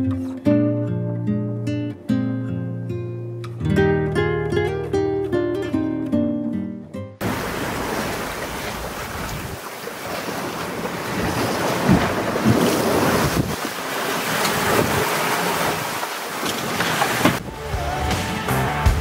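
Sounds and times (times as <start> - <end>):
wind buffeting microphone: 7.2 - 16.0
water splashing along hull: 7.2 - 17.5.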